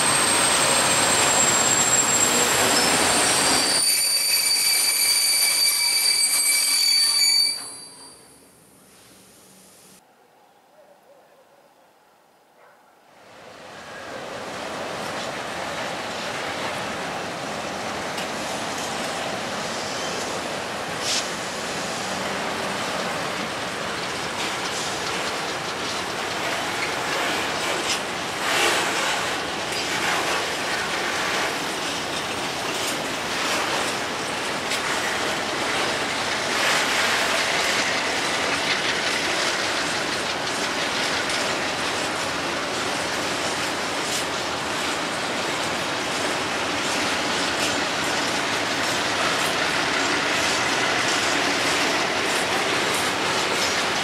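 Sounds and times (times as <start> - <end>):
train wheels squealing: 0.0 - 8.7, 19.6 - 20.4
train wheels clattering over rail joints: 22.6 - 54.0.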